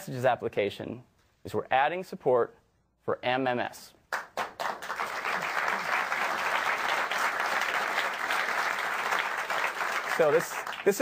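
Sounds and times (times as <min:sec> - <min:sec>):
large audience applauding: 0:04.1 - 0:11.0.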